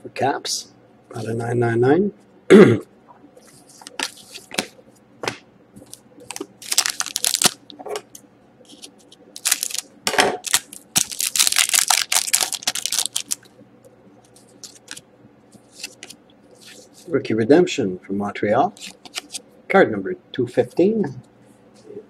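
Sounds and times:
foil wrapper crinkling and tearing: 0:06.3 - 0:07.7, 0:08.7 - 0:13.4, 0:14.6 - 0:15.0.

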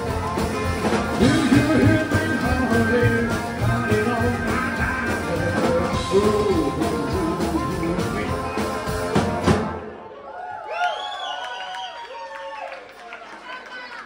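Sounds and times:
person singing: 0:00.0 - 0:09.5
harmonica: 0:00.0 - 0:09.6
live blues band playing: 0:00.0 - 0:10.0.

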